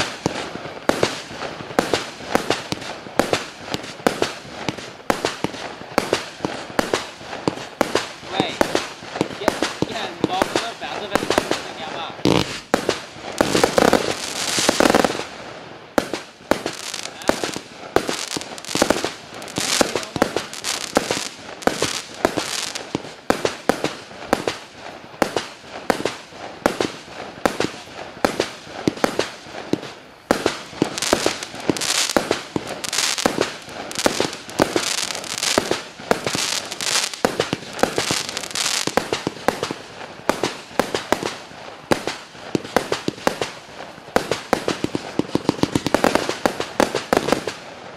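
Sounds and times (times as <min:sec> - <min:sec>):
fireworks popping and banging: 0:00.0 - 0:47.9.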